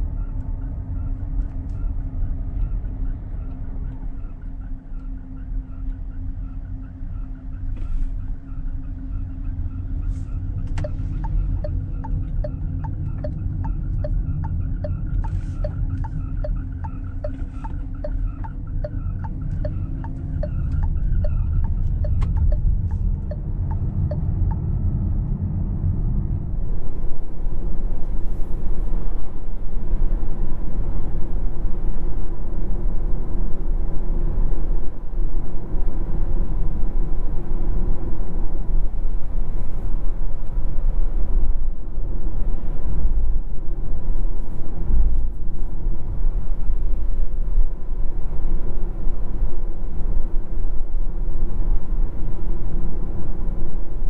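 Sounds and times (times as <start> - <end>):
car road and tyre rumble: 0.0 - 54.0
regular ticking: 10.8 - 24.6.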